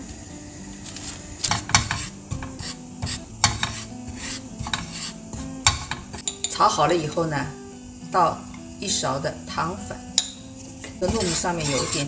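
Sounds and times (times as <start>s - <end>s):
spatula scraping a wok: 0.8s - 7.2s, 10.1s - 12.0s.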